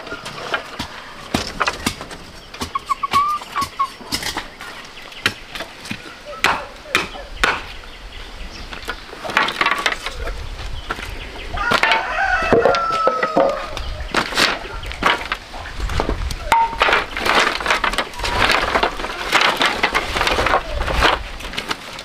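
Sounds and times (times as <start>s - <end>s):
bamboo strips clattering: 0.0s - 7.8s, 8.6s - 22.0s
rooster crowing: 11.5s - 13.8s.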